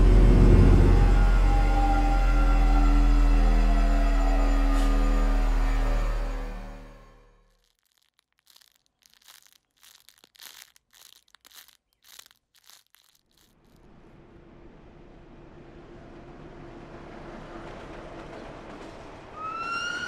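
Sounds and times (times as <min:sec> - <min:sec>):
plastic crinkling: 0:07.4 - 0:13.8.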